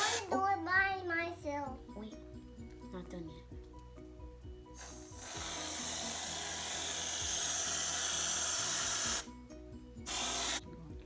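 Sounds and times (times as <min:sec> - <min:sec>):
aerosol whipped cream spraying: 0:04.8 - 0:09.3, 0:10.0 - 0:10.6.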